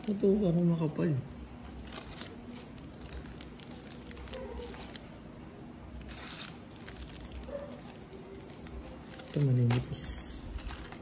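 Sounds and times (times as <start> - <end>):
foil card packs crinkling: 1.7 - 5.2, 6.0 - 11.0.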